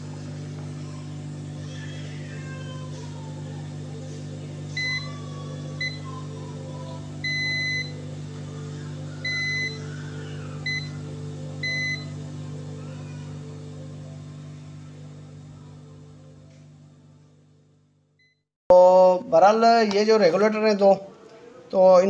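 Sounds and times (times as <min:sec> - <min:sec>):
multimeter continuity beeps: 0:04.8 - 0:05.1, 0:05.8 - 0:06.0, 0:07.2 - 0:08.0, 0:09.2 - 0:09.8, 0:10.7 - 0:11.0, 0:11.6 - 0:12.1.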